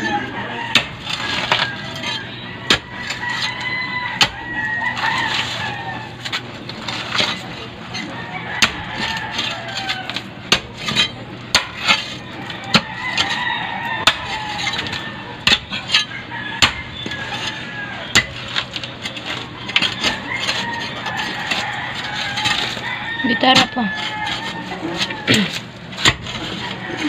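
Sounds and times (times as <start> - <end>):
metal bar striking stony soil: 8.6 - 13.4, 14.0 - 27.0.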